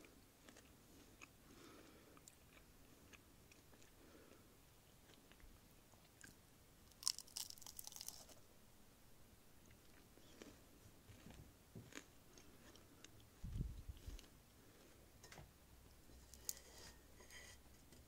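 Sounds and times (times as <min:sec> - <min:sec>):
pastry crunching and crackling: 0:06.0 - 0:08.4, 0:09.7 - 0:13.3, 0:16.1 - 0:17.4.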